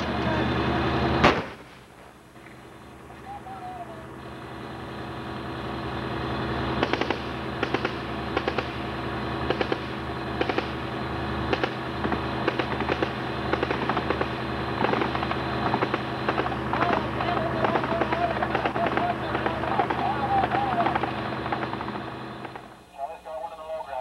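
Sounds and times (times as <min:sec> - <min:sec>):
tank engine running: 0:00.0 - 0:22.9
sharp cracks in bursts: 0:01.2 - 0:02.6, 0:06.7 - 0:22.8.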